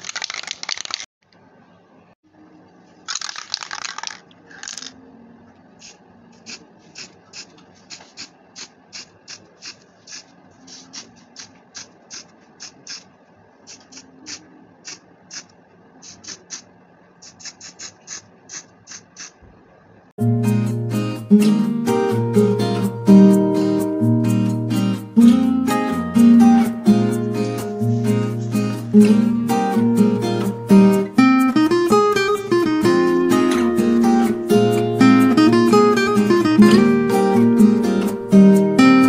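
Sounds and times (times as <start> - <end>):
spray can hissing: 16.0 - 19.4
strummed acoustic guitar music: 20.2 - 39.0.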